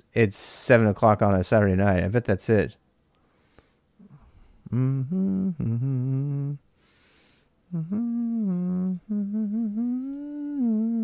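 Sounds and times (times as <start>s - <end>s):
breath: 3.2s - 4.6s, 6.8s - 7.6s
man humming: 4.0s - 6.7s, 7.7s - 11.0s.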